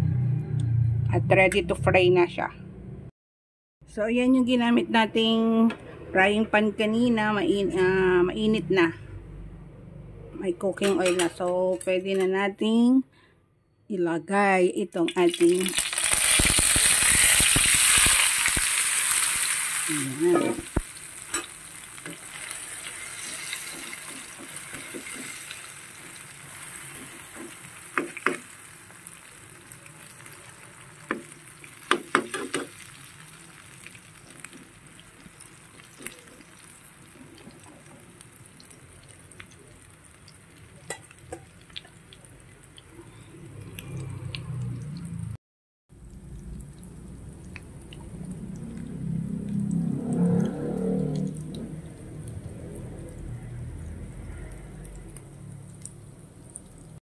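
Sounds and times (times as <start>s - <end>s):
omelette sizzling in oil: 15.5s - 43.2s
spatula scraping and tapping pan: 23.1s - 25.6s.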